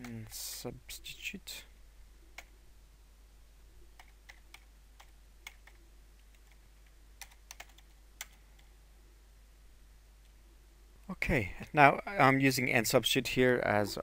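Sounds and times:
faint keyboard typing: 0.0 - 0.7, 2.3 - 2.6, 3.9 - 8.8, 11.4 - 11.8.

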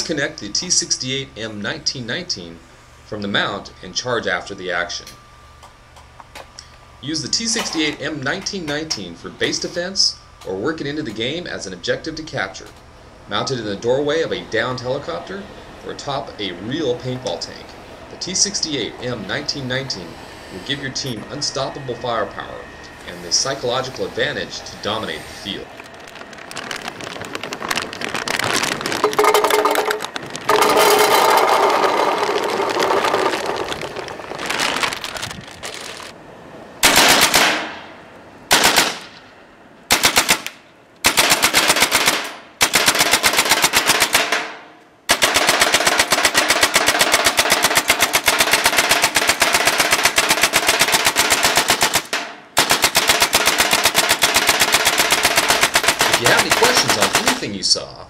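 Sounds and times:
paintballs rattling into metal box: 25.8 - 36.2, 53.3 - 57.5
paintball gun firing bursts: 36.8 - 37.8, 38.5 - 39.2, 39.9 - 57.5.

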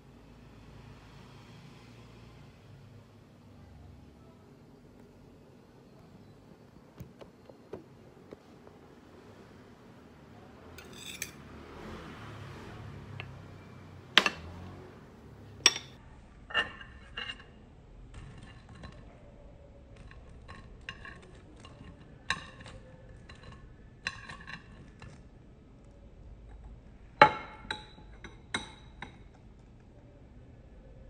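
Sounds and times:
metal chopsticks clinking on ceramic: 10.8 - 11.4, 15.6 - 17.4.

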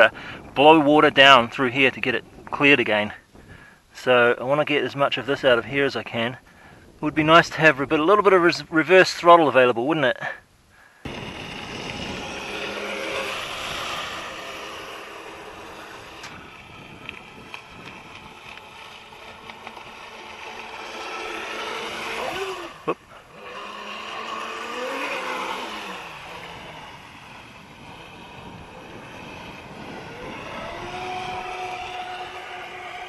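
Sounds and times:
model boat motor whining: 10.9 - 33.0.

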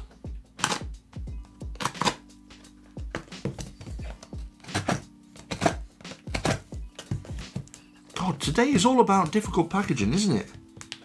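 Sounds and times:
knife cutting packing tape: 0.6 - 0.9, 1.8 - 2.3, 4.6 - 6.7.

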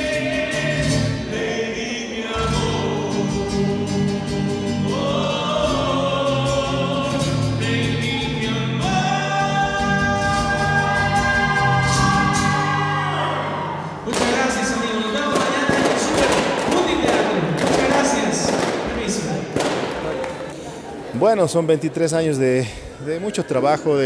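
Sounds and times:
male group singing in harmony: 0.0 - 14.0
acoustic guitar: 0.0 - 21.1.

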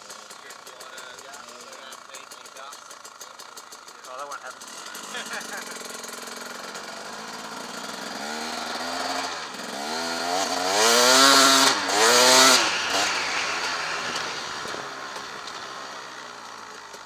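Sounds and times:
motorbike engine revving: 0.0 - 17.0.

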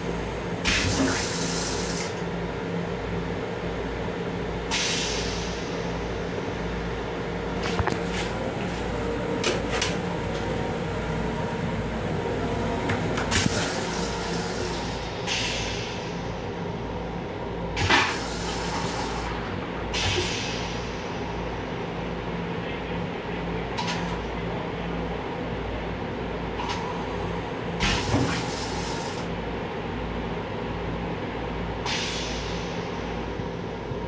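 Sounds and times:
electric railcar hum: 0.0 - 34.0.

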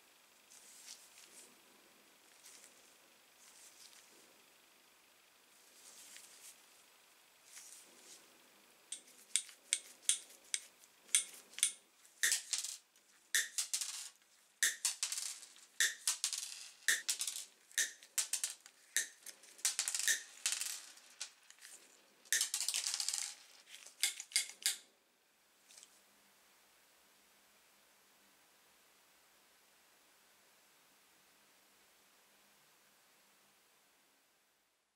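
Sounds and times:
wire bits rattling on wooden table: 8.9 - 24.8.

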